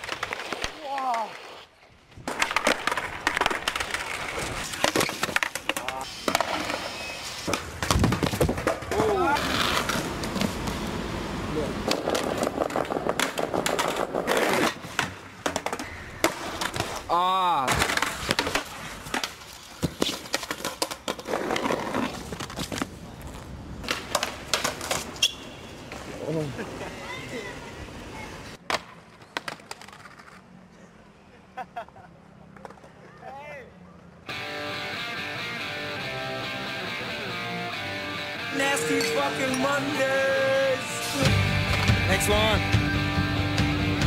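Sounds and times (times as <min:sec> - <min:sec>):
skateboard clacking: 0:00.0 - 0:01.4, 0:02.2 - 0:06.8, 0:11.8 - 0:17.1, 0:17.7 - 0:21.8, 0:23.8 - 0:25.5
skateboard wheels rolling: 0:00.0 - 0:34.7.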